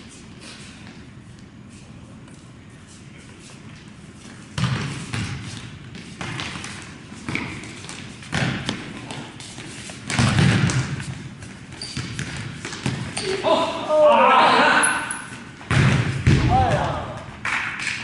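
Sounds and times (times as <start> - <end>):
ball thudding in echoing gym: 4.4 - 18.0.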